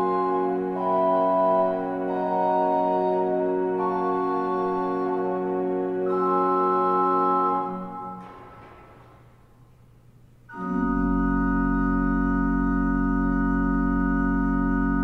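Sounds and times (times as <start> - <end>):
pipe organ chords: 0.0 - 9.5, 10.5 - 15.0
deep organ pedal bass note: 10.5 - 15.0.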